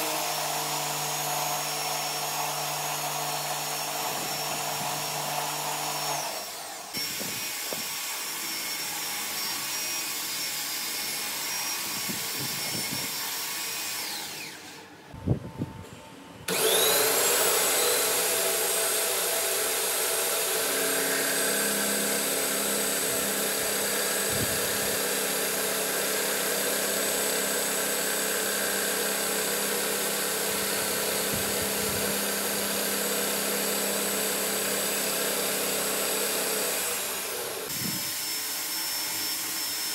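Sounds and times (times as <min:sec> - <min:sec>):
lathe spindle whining: 0:16.5 - 0:38.0.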